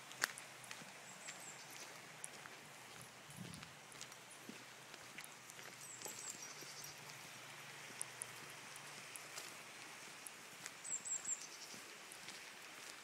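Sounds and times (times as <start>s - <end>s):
footsteps on dirt track: 0.0s - 13.0s
outdoor hiss: 0.0s - 13.0s
high chirping: 5.3s - 7.2s.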